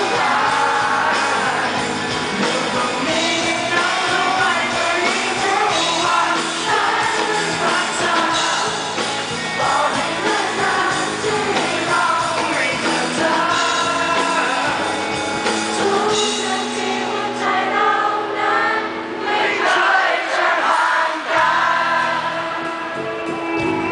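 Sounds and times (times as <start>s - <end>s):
man singing: 0.0s - 17.6s
acoustic and electric guitars: 0.0s - 19.6s, 21.4s - 23.9s.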